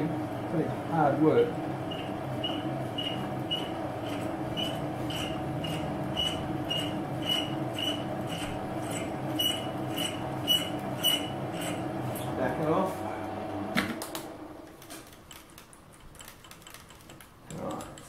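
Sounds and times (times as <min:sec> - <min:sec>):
metal lathe humming: 0:00.0 - 0:13.7
short squeaks: 0:01.9 - 0:03.7, 0:04.6 - 0:11.8.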